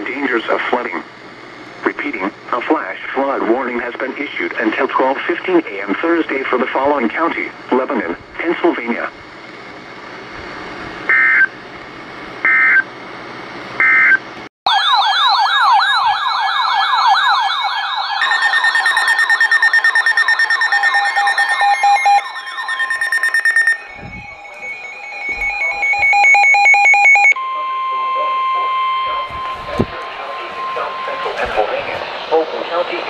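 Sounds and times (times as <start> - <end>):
electronic siren yelping: 13.8 - 32.4
steady high tone: 16.9 - 33.0
fast beeping: 18.2 - 31.9
data tone bursts: 18.2 - 32.4.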